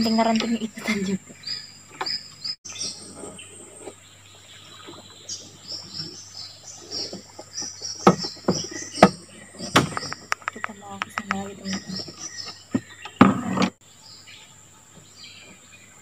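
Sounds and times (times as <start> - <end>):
insects chirping: 0.0 - 16.0
sharp knocks: 8.0 - 11.9.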